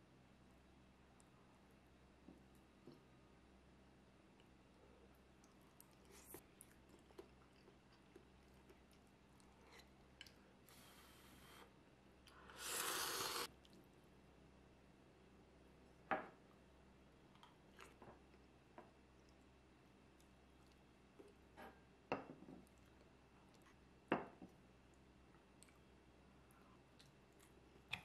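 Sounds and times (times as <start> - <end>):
faint chewing: 4.3 - 11.4, 12.2 - 14.0, 17.3 - 21.5, 22.6 - 23.9, 24.5 - 28.0
slurping noodles: 12.4 - 13.5.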